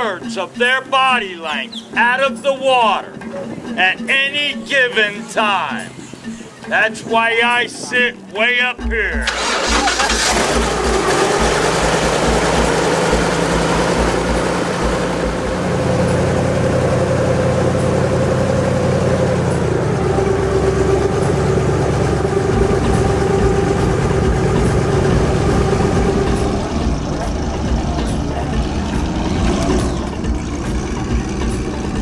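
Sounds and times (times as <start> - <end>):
airboat engine and propeller: 9.2 - 32.0.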